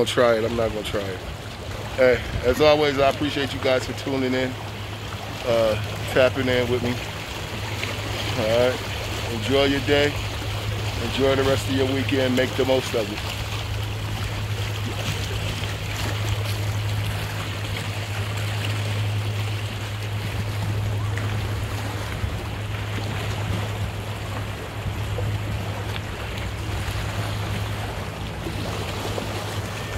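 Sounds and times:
low steady hum: 0.0 - 29.9
water lapping on rocks: 0.0 - 29.9.

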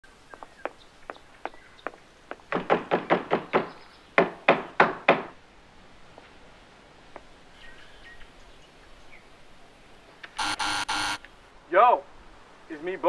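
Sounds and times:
loud knocking on door: 2.5 - 5.3.

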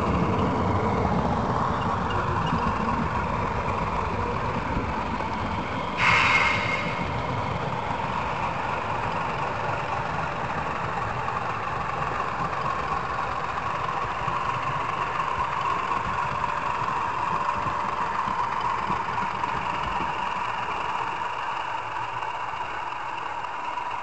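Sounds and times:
wheels rumbling on rails: 0.0 - 24.0.

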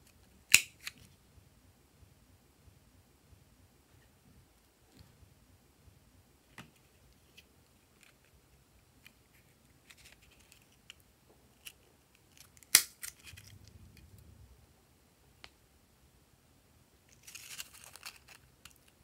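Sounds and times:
paper rustle: 9.3 - 10.8, 17.1 - 19.0.

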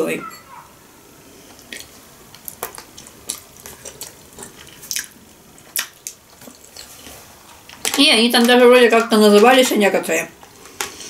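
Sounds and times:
wet chewing and lip smacking: 1.5 - 8.0.

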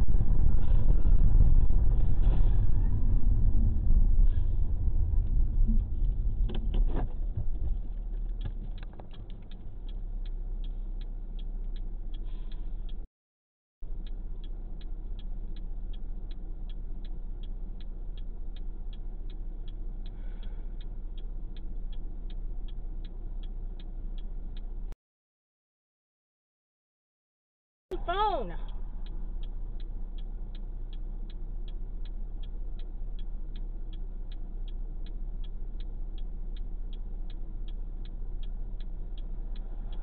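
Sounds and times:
car road and engine noise: 0.0 - 13.1, 13.8 - 25.0, 27.9 - 40.0
turn signal clicking: 5.2 - 13.1, 13.9 - 25.0, 27.9 - 40.0.

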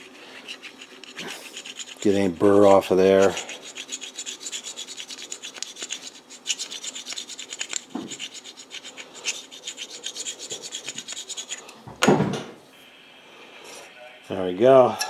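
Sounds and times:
stone rubbing against steel: 0.0 - 11.7.

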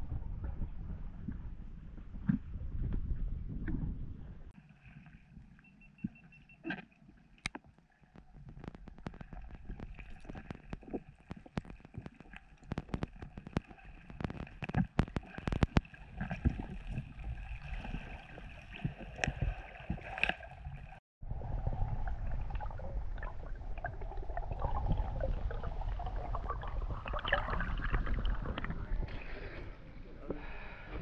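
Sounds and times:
muffled water gurgling: 0.0 - 31.0
sharp underwater clicks: 6.0 - 16.6.

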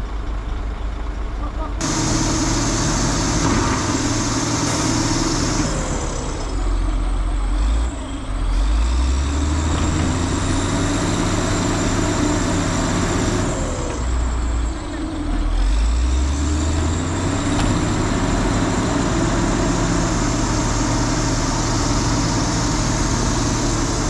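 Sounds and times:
heavy diesel engines running: 0.0 - 24.0.

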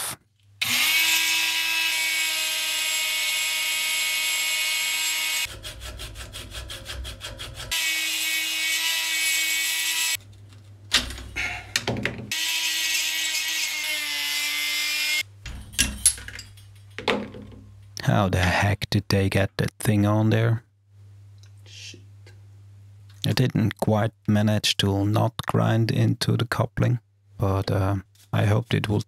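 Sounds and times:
rotary tool whining: 0.6 - 10.2.

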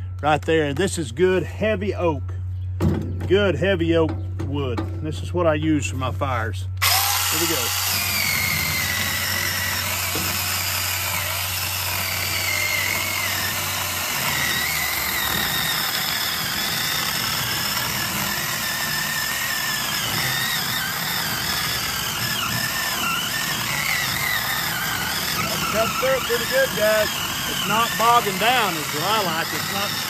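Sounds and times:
electric chainsaw cutting log: 6.8 - 30.0.

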